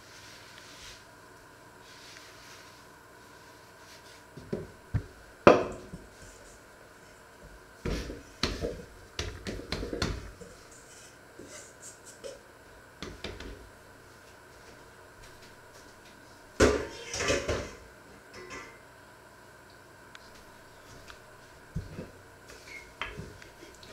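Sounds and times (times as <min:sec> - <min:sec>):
hands thumping and patting dough: 0:07.8 - 0:10.4.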